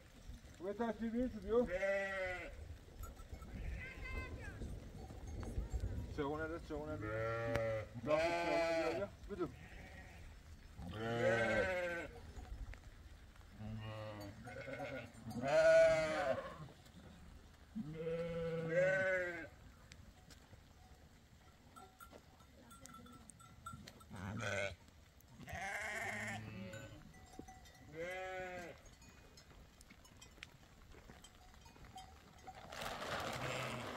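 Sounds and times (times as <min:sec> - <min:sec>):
goats bleating: 0:01.6 - 0:02.6, 0:07.0 - 0:10.3, 0:10.9 - 0:12.1, 0:13.7 - 0:16.7, 0:17.8 - 0:19.6, 0:24.3 - 0:24.8, 0:25.4 - 0:27.0, 0:27.9 - 0:28.8, 0:33.4 - 0:33.9.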